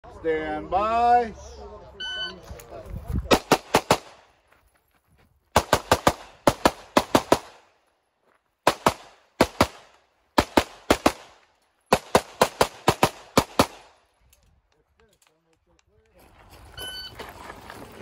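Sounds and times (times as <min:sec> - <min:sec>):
rapid pistol fire: 0:03.3 - 0:04.2, 0:05.6 - 0:07.6, 0:08.7 - 0:14.0.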